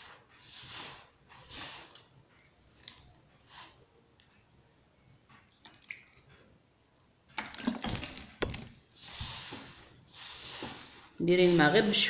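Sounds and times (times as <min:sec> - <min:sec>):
dough clicks and knocks in bowl: 0:07.3 - 0:12.0
soft rubbing rustle: 0:08.9 - 0:12.0.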